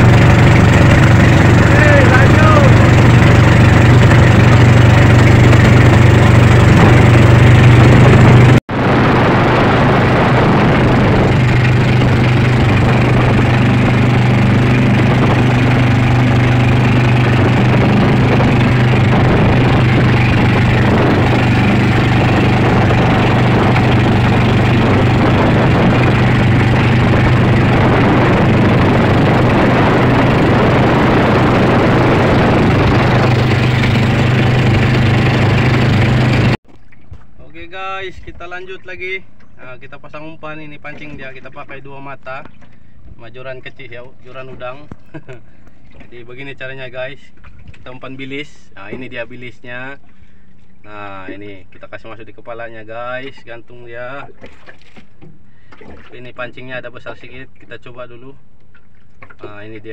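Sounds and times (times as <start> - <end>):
outboard motor running: 0.0 - 37.4, 40.7 - 51.8, 54.2 - 57.7, 58.5 - 59.9
water rushing past hull: 0.0 - 39.0.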